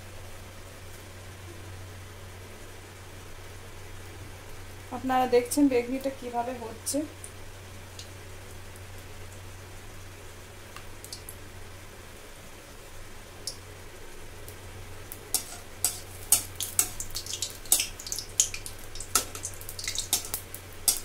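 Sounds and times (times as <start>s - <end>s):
fritters sizzling and crackling in oil: 0.0s - 21.0s
low steady hum: 0.0s - 21.0s.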